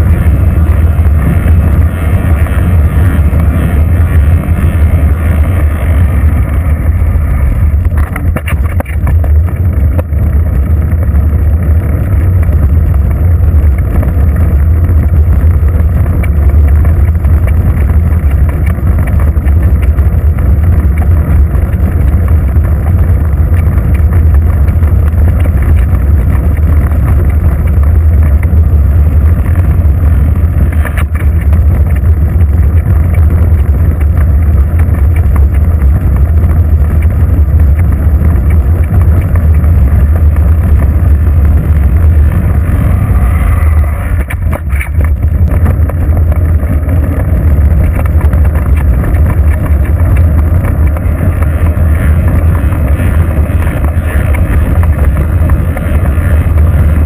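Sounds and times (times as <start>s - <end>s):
bicycle road noise: 0.0s - 57.0s
wind buffeting microphone: 0.0s - 57.0s.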